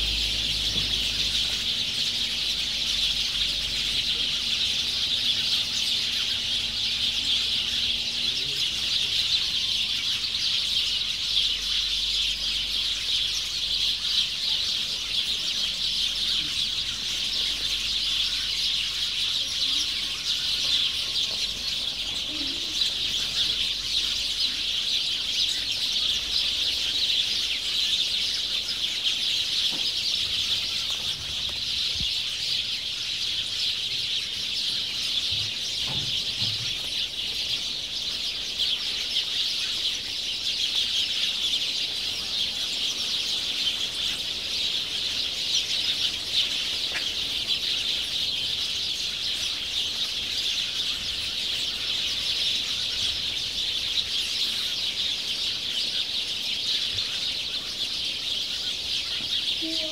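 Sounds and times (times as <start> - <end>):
many birds chirping: 0.0 - 59.9.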